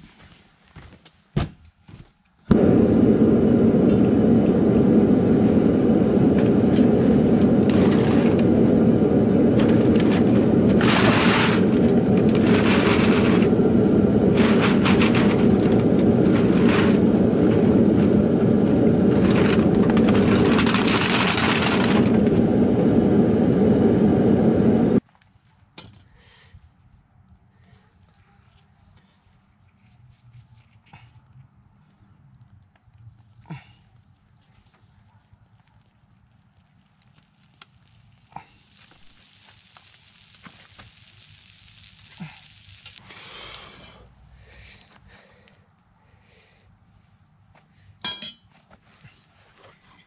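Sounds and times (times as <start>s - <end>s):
propane burner roaring: 2.5s - 25.0s, 35.6s - 48.4s
hissy rustling bursts: 35.8s - 43.1s.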